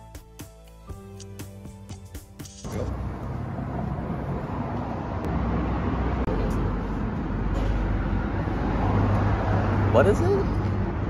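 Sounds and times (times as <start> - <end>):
road traffic rumble: 2.6 - 11.0.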